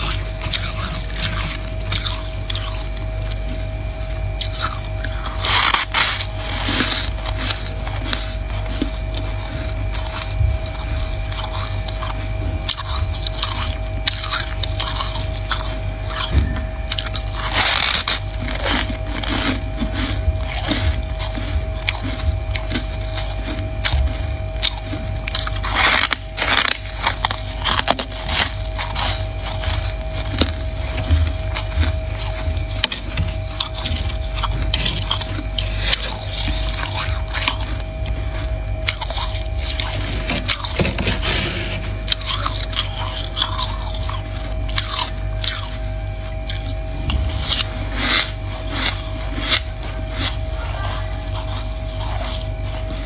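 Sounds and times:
faint steady hum: 0:00.0 - 0:53.0
frost crunching: 0:00.0 - 0:53.0.

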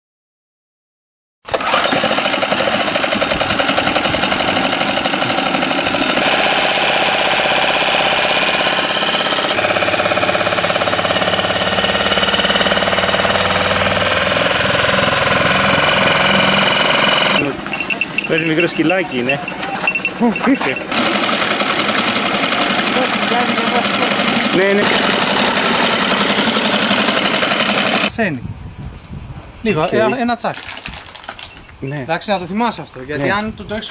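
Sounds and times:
outboard engine running: 0:01.5 - 0:28.1.

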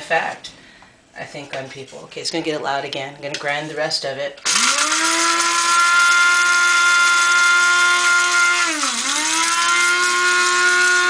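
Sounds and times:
electric grinder motor whine: 0:04.5 - 0:11.0.

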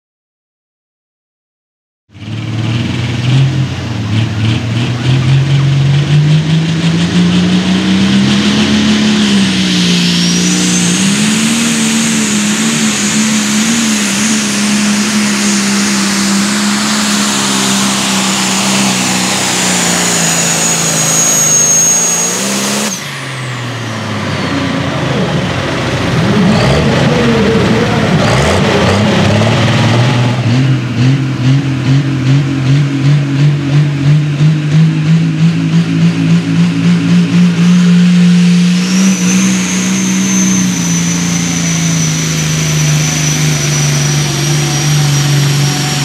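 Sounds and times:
tractor diesel idling and revving: 0:02.1 - 0:46.0
diesel tractor engine under load: 0:02.2 - 0:46.0
turbo whistle: 0:09.3 - 0:23.1, 0:37.7 - 0:46.0.

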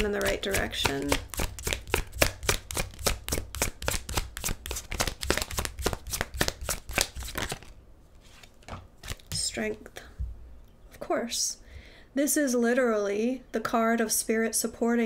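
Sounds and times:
cards being shuffled: 0:00.0 - 0:09.8.

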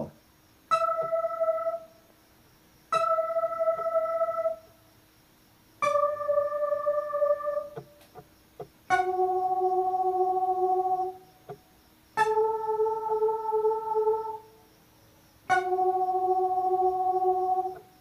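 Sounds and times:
electronic keyboard playing slow melody: 0:00.7 - 0:02.0, 0:02.9 - 0:04.8, 0:05.8 - 0:08.2, 0:08.9 - 0:11.6, 0:12.2 - 0:14.6, 0:15.5 - 0:18.0.

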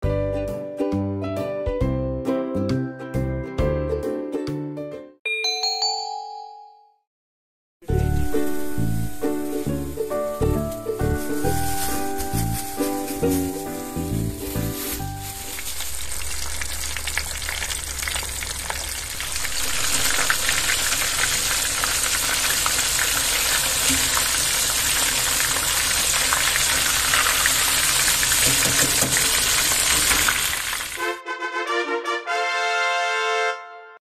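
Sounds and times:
fish deep-frying in oil: 0:07.9 - 0:10.2, 0:13.9 - 0:31.0.

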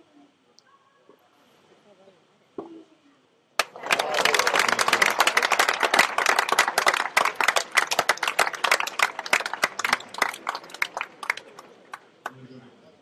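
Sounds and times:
crowd applauding: 0:03.6 - 0:12.4.

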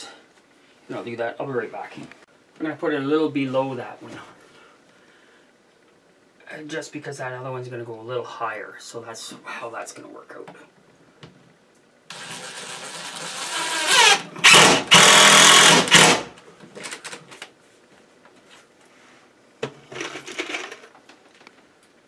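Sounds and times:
cordless drill driving a screw: 0:12.1 - 0:16.3.

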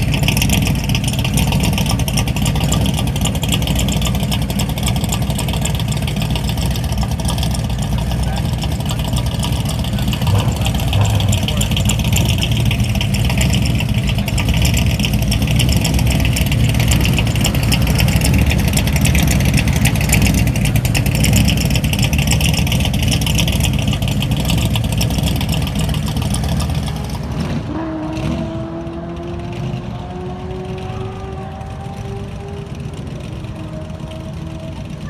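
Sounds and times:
quiet engine hum: 0:00.0 - 0:27.3
choppy exhaust rumble: 0:00.0 - 0:35.0.

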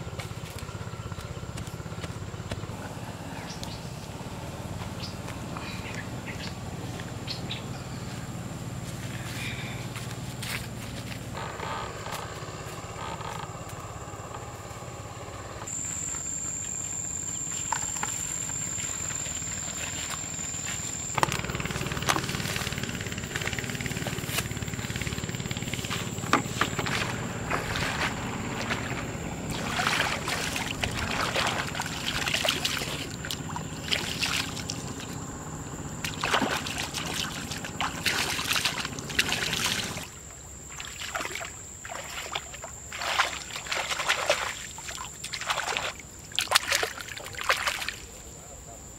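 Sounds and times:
footsteps rustling through grass: 0:08.0 - 0:11.3, 0:25.8 - 0:31.8
high-pitched tone: 0:15.7 - 0:24.2
water sloshing and splashing: 0:17.7 - 0:35.2, 0:36.0 - 0:48.1.

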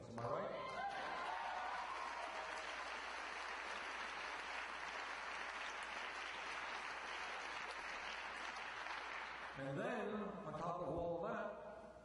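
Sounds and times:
audience applauding: 0:00.6 - 0:09.6.

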